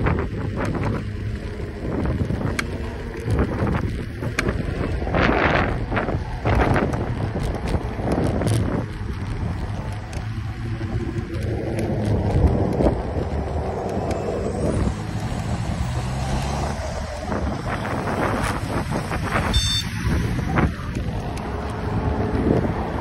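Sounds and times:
electric scooter rumbling: 0:00.0 - 0:23.0
wind buffeting microphone: 0:00.0 - 0:23.0
short high-pitched beep: 0:19.5 - 0:20.0.

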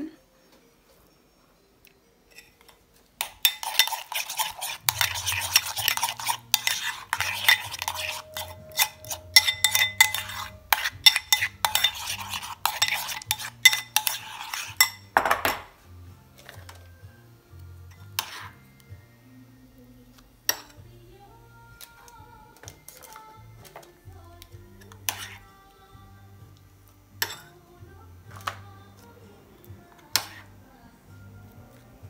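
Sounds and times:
faint background music: 0:00.0 - 0:32.0
metal utensils clinking on dishes: 0:02.3 - 0:15.7, 0:20.5 - 0:20.9, 0:27.2 - 0:27.6.

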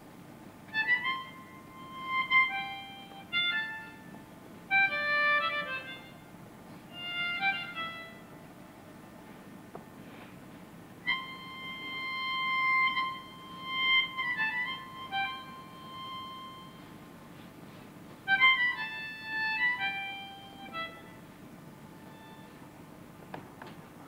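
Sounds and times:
solo instrument slow high melody: 0:00.7 - 0:08.4, 0:11.0 - 0:17.5, 0:18.3 - 0:22.6.

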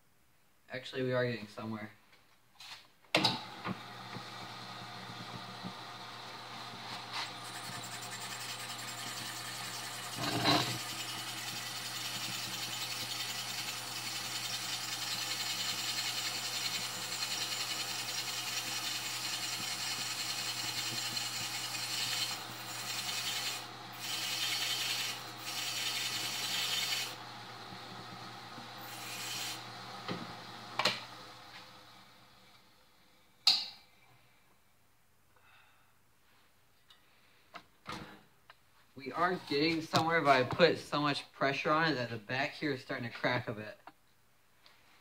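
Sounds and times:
drill press motor hum: 0:03.4 - 0:32.3
drill bit rasping into wood: 0:07.1 - 0:27.2
drill screech: 0:07.1 - 0:27.2.

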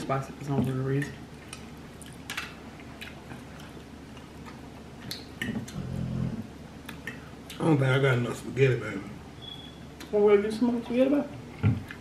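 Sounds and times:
person chewing: 0:01.0 - 0:07.6.

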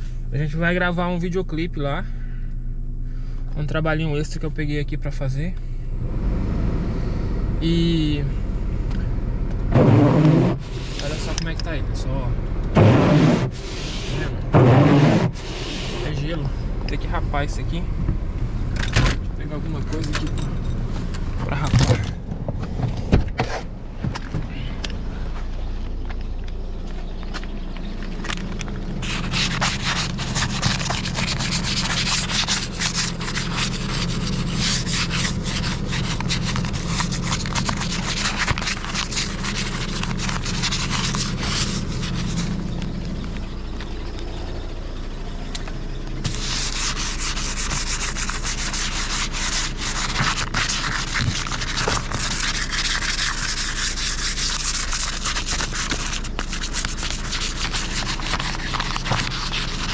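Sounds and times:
ice scraped off windshield: 0:29.0 - 0:42.6, 0:46.2 - 0:59.9.

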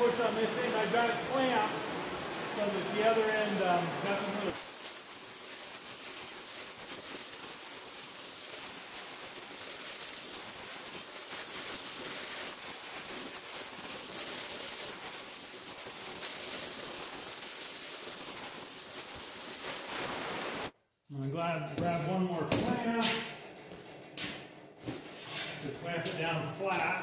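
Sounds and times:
cutting torch hissing: 0:00.0 - 0:20.8.

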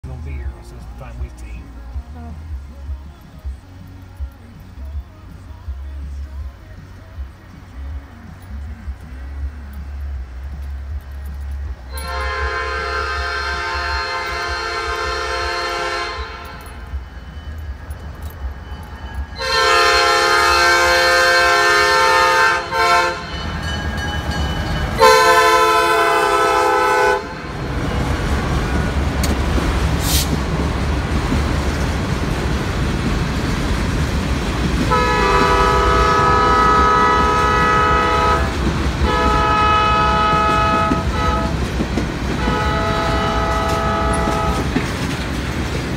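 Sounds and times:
train rumbling and clattering: 0:00.0 - 0:45.9
locomotive air horn: 0:11.9 - 0:16.9, 0:19.4 - 0:23.6, 0:24.9 - 0:28.8, 0:34.9 - 0:45.0.

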